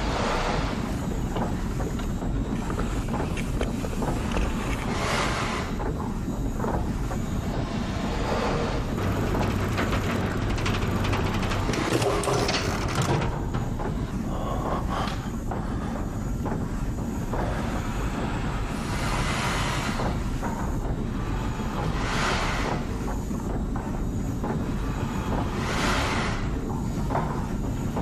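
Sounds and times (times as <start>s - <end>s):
low hum: 0.0s - 28.0s
old machinery rumbling: 0.0s - 28.0s
metallic clicks and clatters: 8.9s - 13.9s.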